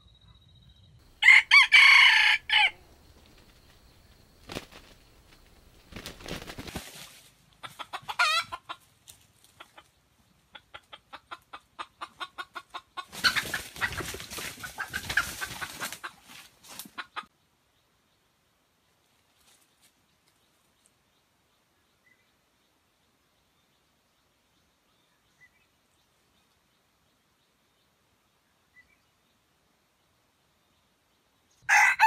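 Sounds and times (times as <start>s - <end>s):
rustling and wing-flapping: 2.6s - 8.2s, 13.0s - 17.2s
junglefowl clucking: 7.6s - 17.3s.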